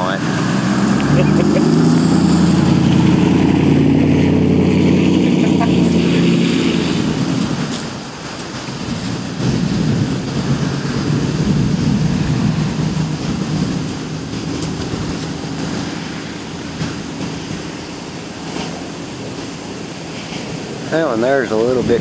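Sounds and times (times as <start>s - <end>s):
wind rushing: 0.0s - 22.0s
rolling thunder: 1.6s - 17.7s.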